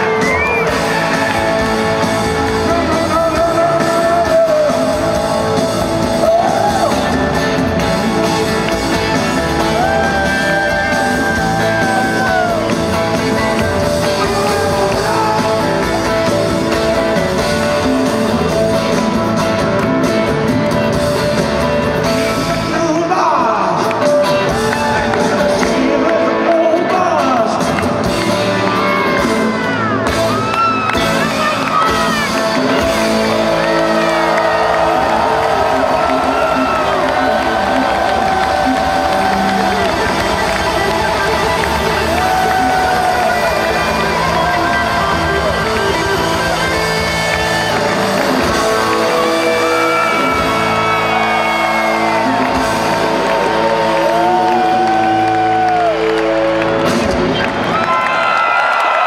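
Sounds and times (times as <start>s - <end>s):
man singing: 0.0s - 7.3s, 22.6s - 24.4s, 25.1s - 28.0s
live rock band: 0.0s - 59.0s.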